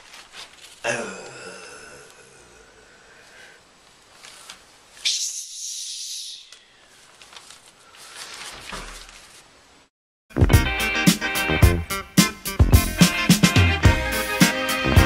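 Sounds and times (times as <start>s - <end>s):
faint rustling: 0.0s - 0.9s, 3.1s - 5.1s, 6.5s - 9.9s
man hissing through teeth: 5.0s - 6.7s.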